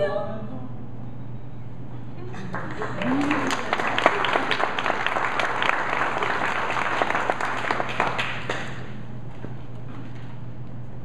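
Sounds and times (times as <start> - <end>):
small audience applauding: 2.3 - 9.0.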